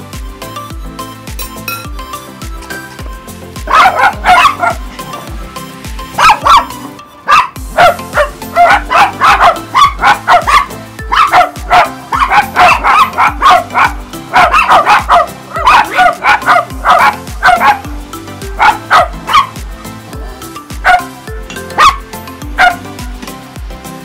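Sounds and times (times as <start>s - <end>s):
dogs barking: 3.6s - 5.1s, 6.1s - 20.0s, 20.8s - 23.0s.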